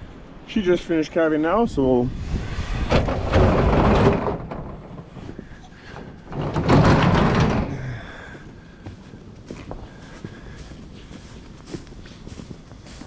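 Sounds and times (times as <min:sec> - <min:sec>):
metal roll-up door rattling: 0:02.8 - 0:07.8.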